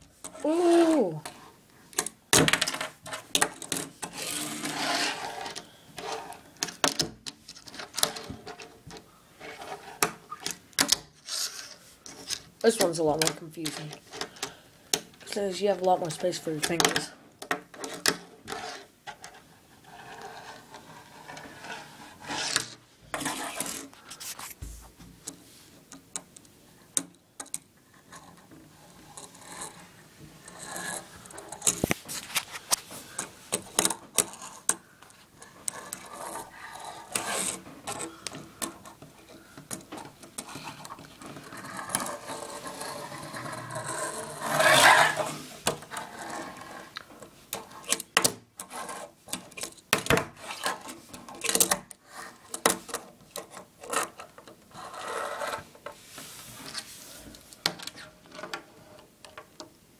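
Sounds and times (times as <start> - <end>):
fingerboard rolling and scraping on wood: 2.8 - 6.8, 7.6 - 10.6, 17.7 - 23.9, 28.0 - 31.7, 35.4 - 38.1, 39.9 - 47.9, 48.6 - 49.2, 52.0 - 56.9.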